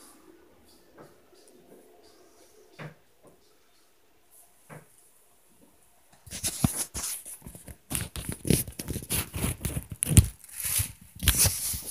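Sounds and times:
rustling and crinkling: 0:04.3 - 0:11.9.

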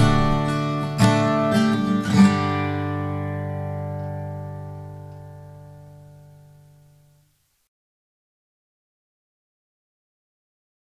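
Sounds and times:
acoustic guitar strumming chords: 0:00.0 - 0:07.4.

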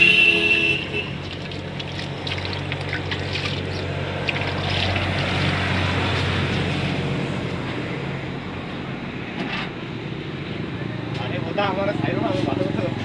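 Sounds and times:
water splashing in a drum: 0:00.6 - 0:06.7.

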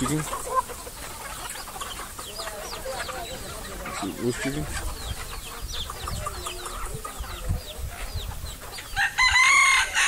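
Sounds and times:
chickens clucking: 0:00.0 - 0:10.0
rooster crowing: 0:09.0 - 0:10.0.

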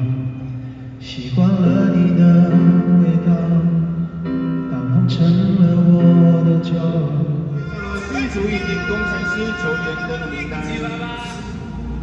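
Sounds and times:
live singing with backing music: 0:07.6 - 0:12.0.

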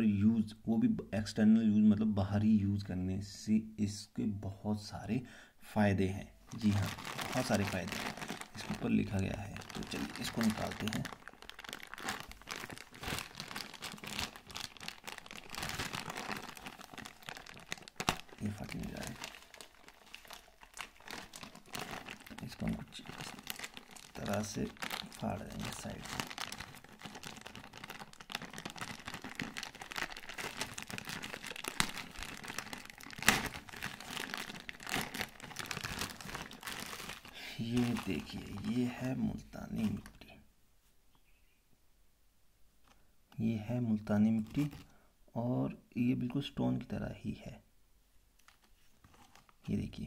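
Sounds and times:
plastic bag crinkling: 0:06.5 - 0:40.2, 0:44.0 - 0:45.0, 0:48.4 - 0:49.7.

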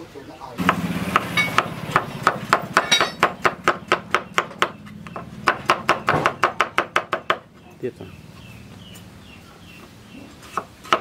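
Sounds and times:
cleaver chopping on wooden board: 0:00.6 - 0:07.5, 0:10.5 - 0:11.0.

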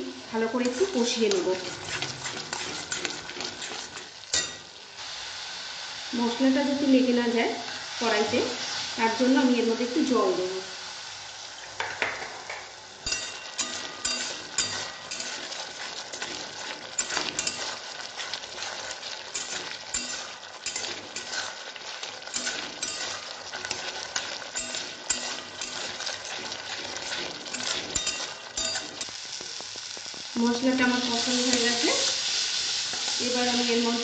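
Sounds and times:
food sizzling: 0:00.0 - 0:34.0
metal spatula scraping a pan: 0:00.5 - 0:04.7, 0:13.0 - 0:29.2.

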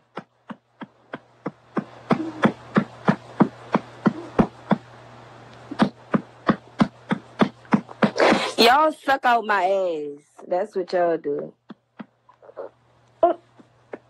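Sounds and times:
baby sucking with rhythmic clicks: 0:00.0 - 0:08.5
woman speaking: 0:08.4 - 0:11.6.

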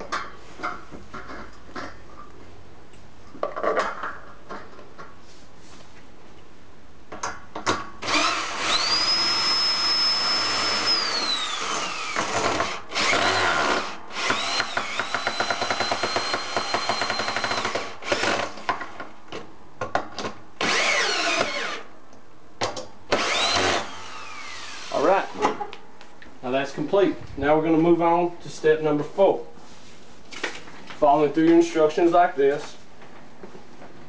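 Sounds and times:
cordless drill driving bolts: 0:08.0 - 0:18.9, 0:20.6 - 0:21.9, 0:23.1 - 0:25.1.

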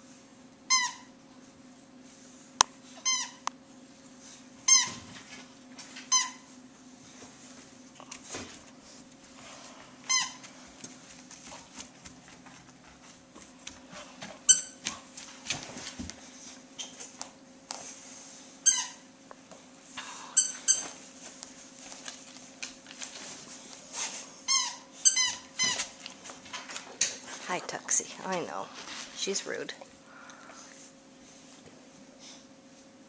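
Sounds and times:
squeaky toy squeaks: 0:24.5 - 0:25.8.

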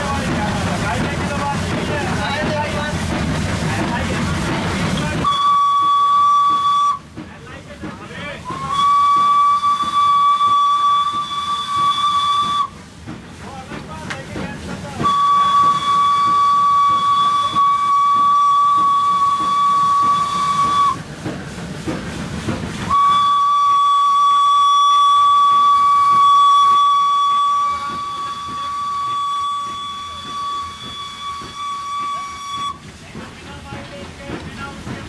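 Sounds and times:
steam whistle blasts: 0:05.2 - 0:07.1, 0:08.5 - 0:12.8, 0:15.0 - 0:21.0, 0:22.9 - 0:32.8.

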